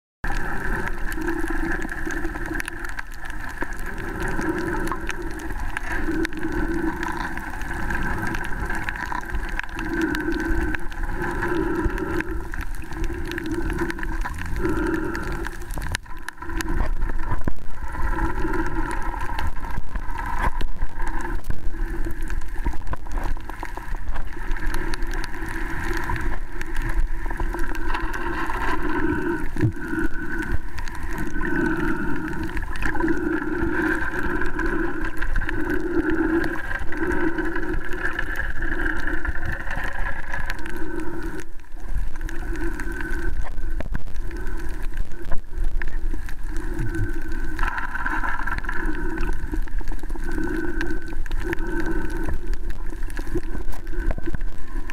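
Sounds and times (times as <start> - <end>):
muffled underwater water noise: 0.2 - 54.9.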